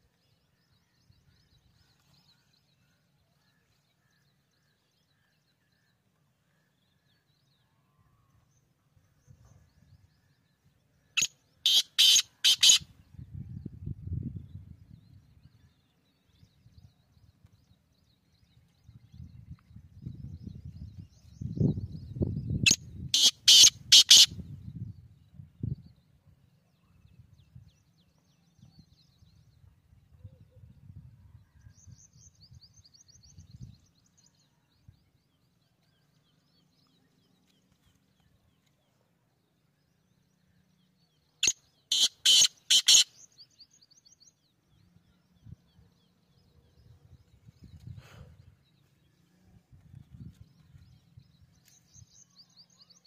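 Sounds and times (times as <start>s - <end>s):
small bird high chirps: 11.1s - 14.3s, 20.6s - 24.9s, 41.3s - 46.2s
francolin loud call: 41.9s - 43.1s.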